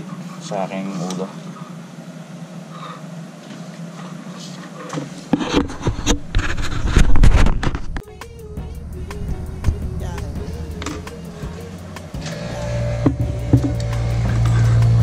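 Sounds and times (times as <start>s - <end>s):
heavy rumble: 6.8s - 15.0s.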